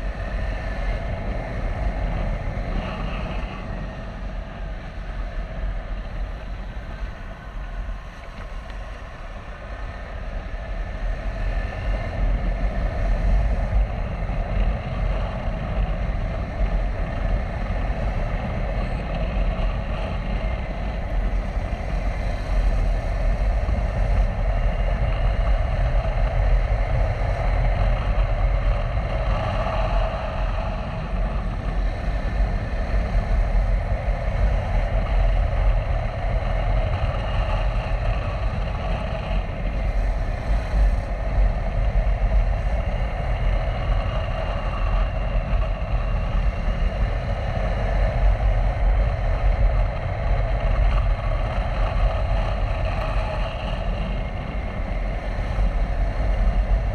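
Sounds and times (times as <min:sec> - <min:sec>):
riding noise rush: 0:00.0 - 0:56.9.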